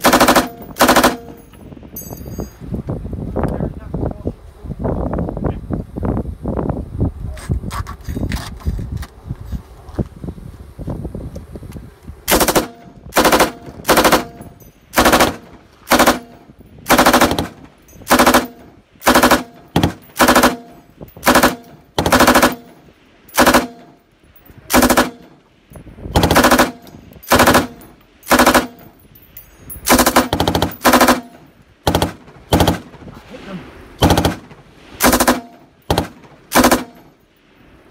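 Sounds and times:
machine gun firing bursts: 0.0 - 1.4, 12.3 - 22.7, 23.3 - 23.8, 24.7 - 25.2, 26.2 - 28.8, 29.9 - 32.9, 34.0 - 37.1.

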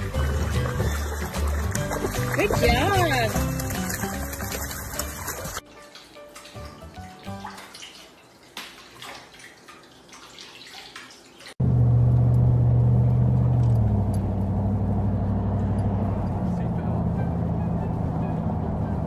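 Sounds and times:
motorboat engine running: 0.0 - 5.6, 11.6 - 19.0
water sloshing and dripping: 0.0 - 11.6.

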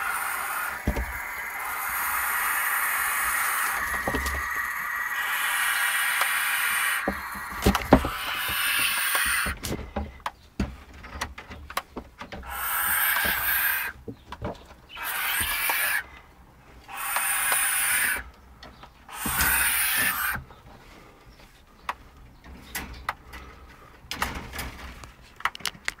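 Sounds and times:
owl hissing: 0.0 - 9.8, 12.4 - 14.0, 14.9 - 16.1, 16.7 - 18.3, 19.1 - 20.5.

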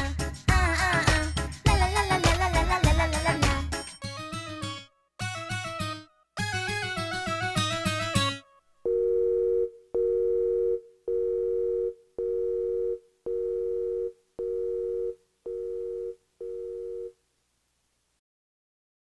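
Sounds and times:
two-note telephone beeps: 8.9 - 17.1.

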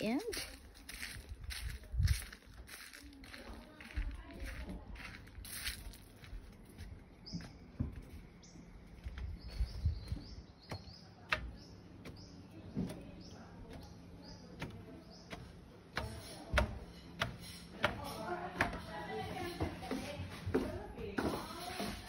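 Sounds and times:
footsteps on wooden stairs: 0.0 - 18.0, 18.6 - 22.0
bird chirping: 7.2 - 15.5.

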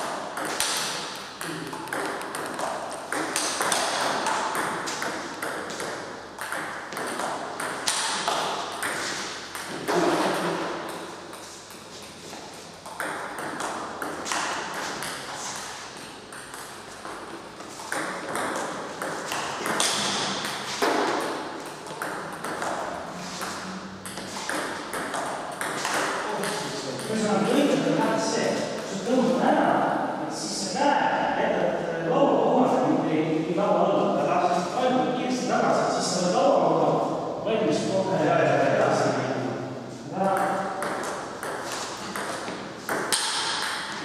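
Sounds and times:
ball bouncing on table: 0.4 - 11.8, 12.8 - 27.3, 40.2 - 44.0
bats striking ball: 40.8 - 44.0.

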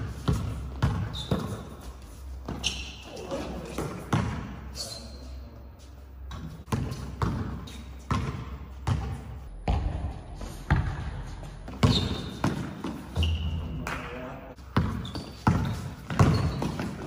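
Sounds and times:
basketball bouncing on court: 0.0 - 1.6, 3.8 - 4.6, 6.3 - 17.0.

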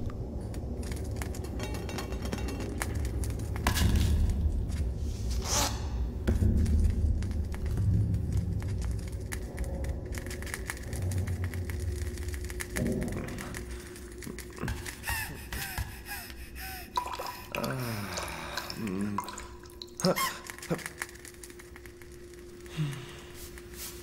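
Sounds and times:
steady low hum: 0.0 - 24.0
gasp-like breaths: 14.6 - 19.0
cartoon dripping water: 16.9 - 22.6.

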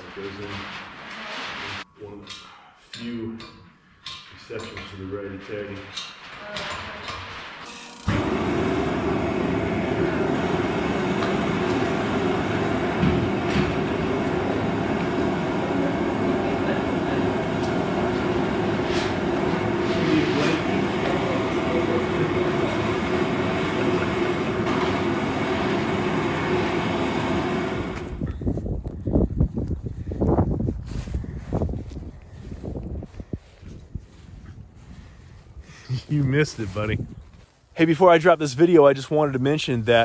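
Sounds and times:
power saw cutting wood: 7.6 - 28.1.

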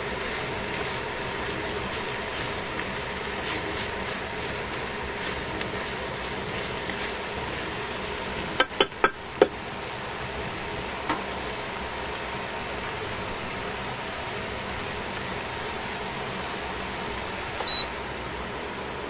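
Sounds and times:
steady background hum: 0.0 - 19.0
chopsticks tapping frying pan: 8.5 - 9.6.

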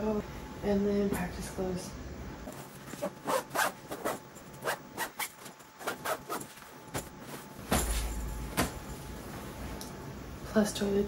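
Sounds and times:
clothes and bags rustling: 2.4 - 9.8.

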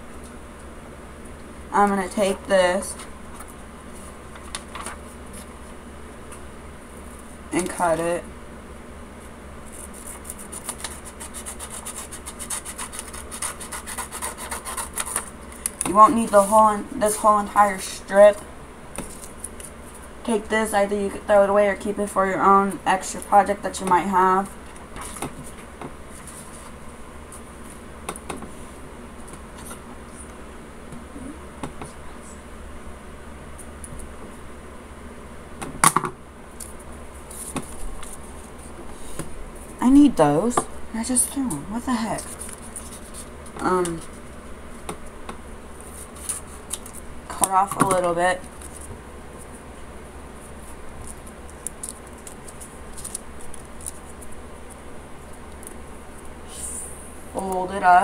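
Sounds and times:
low room hum: 0.0 - 58.0
scissors cutting paper: 9.8 - 15.7.

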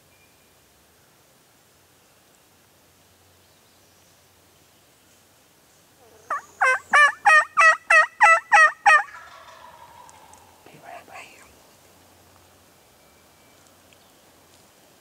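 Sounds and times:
turkey yelps: 6.0 - 10.6.

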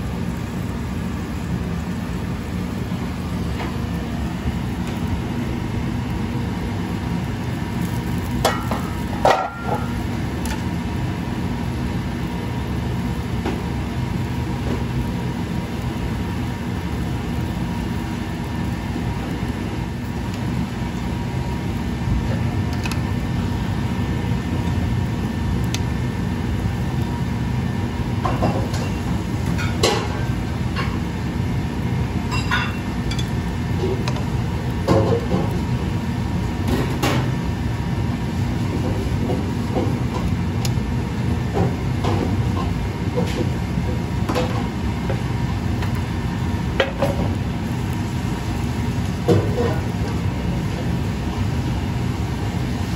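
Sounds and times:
gas range rumbling: 0.0 - 52.9
tongs clinking in frying pan: 32.3 - 33.4.

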